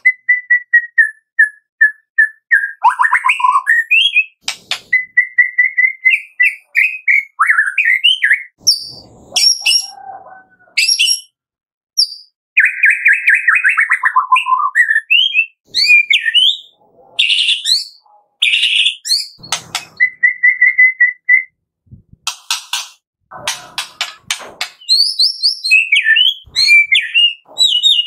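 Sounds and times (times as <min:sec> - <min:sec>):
bird singing whistled phrases: 0:00.0 - 0:10.2, 0:12.0 - 0:21.5, 0:24.8 - 0:28.0
sharp bird clicks: 0:04.4 - 0:05.1, 0:19.1 - 0:20.2, 0:22.3 - 0:25.7.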